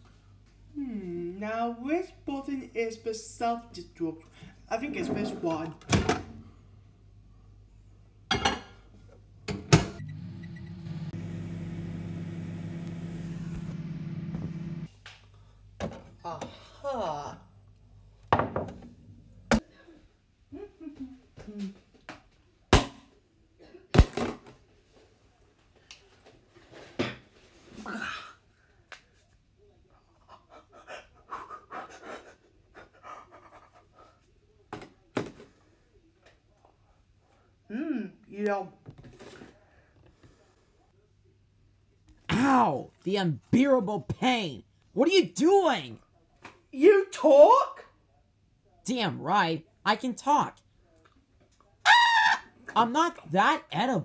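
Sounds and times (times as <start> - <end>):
microwave electrical hum: 9.3 - 14.9
microwave fan hiss: 9.8 - 14.9.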